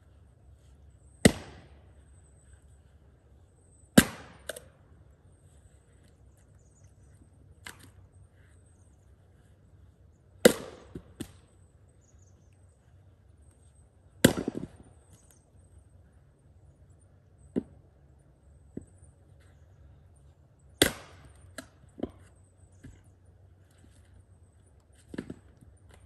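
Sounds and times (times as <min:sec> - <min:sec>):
axe splitting firewood: 0:01.2 - 0:01.7, 0:04.0 - 0:04.6, 0:20.8 - 0:22.3.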